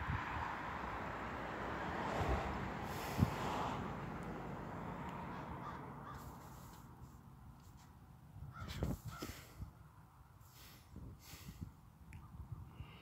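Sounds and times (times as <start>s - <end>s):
crows cawing: 5.2s - 6.5s, 8.5s - 9.4s.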